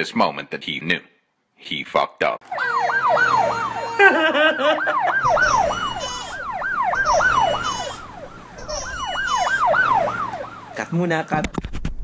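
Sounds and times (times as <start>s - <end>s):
yelp siren wailing: 2.4s - 11.4s
wavering siren tone: 2.5s - 11.4s.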